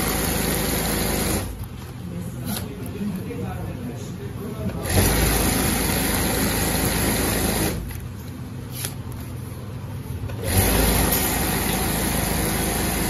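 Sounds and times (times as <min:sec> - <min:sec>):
sewing machine stitching: 0:00.0 - 0:01.6, 0:04.8 - 0:07.8, 0:10.3 - 0:13.0.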